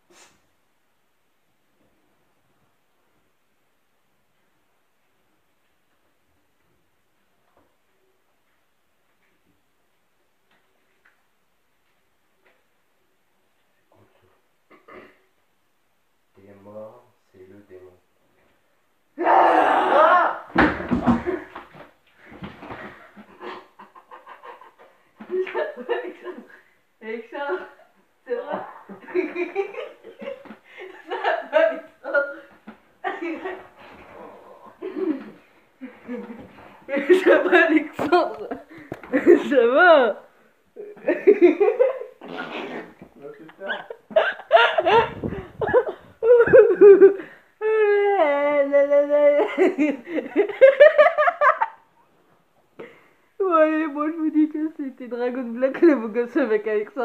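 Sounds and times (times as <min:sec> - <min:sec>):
teenagers laughing: 0:43.5 - 0:47.4, 0:49.5 - 0:51.8.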